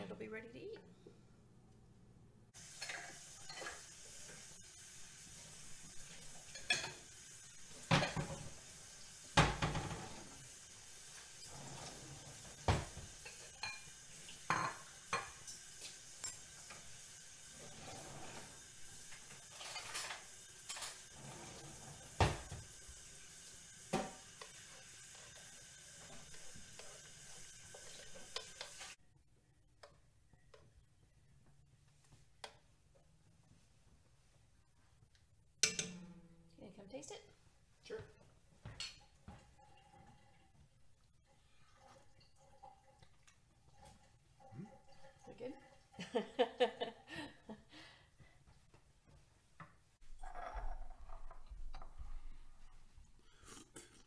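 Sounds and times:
steady hiss: 2.6 - 29.0
cutlery clinking: 2.7 - 3.9, 6.4 - 7.1, 13.2 - 16.8, 19.4 - 21.2, 35.6 - 36.2
dishes clacking together: 35.6 - 36.2.

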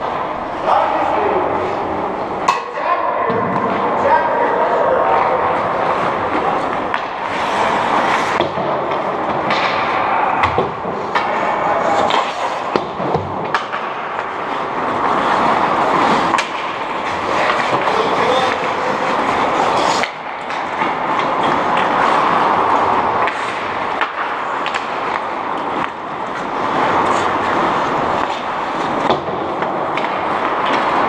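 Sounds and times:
hockey sticks and puck clacking: 0.0 - 31.0
skates scraping on ice: 0.0 - 31.0.

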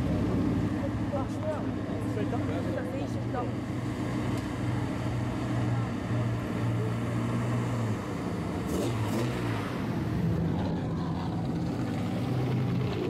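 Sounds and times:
car engines driving slowly past: 0.0 - 13.0.

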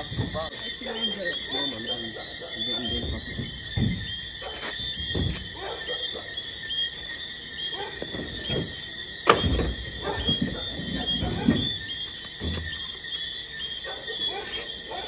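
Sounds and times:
wooden posts knocking: 0.0 - 5.9, 7.8 - 13.3
high chirping night chorus: 0.0 - 15.0
rustling and low thuds: 2.8 - 5.6, 7.9 - 13.5.

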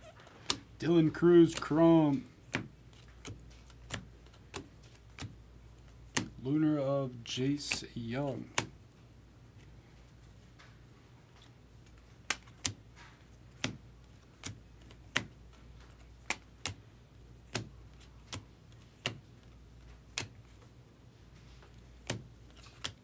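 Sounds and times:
cards clicking as flipped: 0.2 - 6.4, 10.5 - 16.8, 17.4 - 20.7, 21.6 - 23.0.

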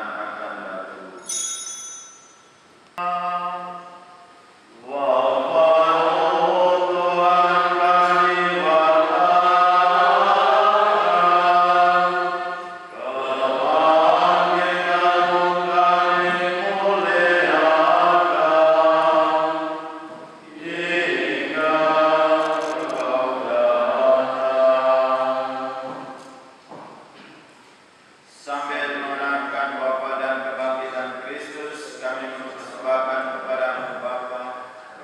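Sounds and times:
voices chanting in unison: 4.7 - 26.4.

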